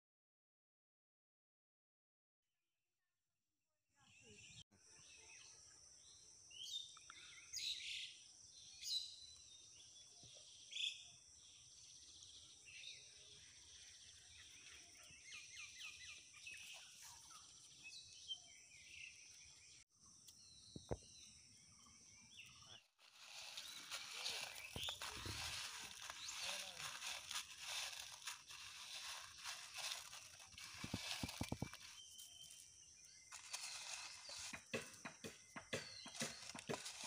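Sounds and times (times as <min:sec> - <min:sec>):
birds chirping: 0:06.5 - 0:37.0
loud rustling: 0:23.1 - 0:32.0.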